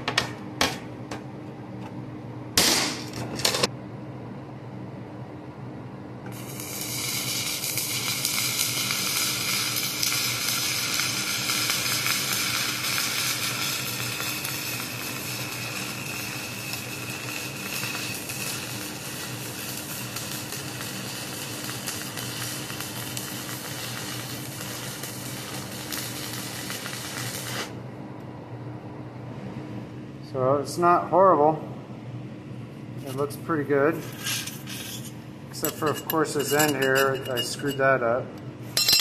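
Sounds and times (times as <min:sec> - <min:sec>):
welding arc crackling sizzle: 0:06.3 - 0:27.8.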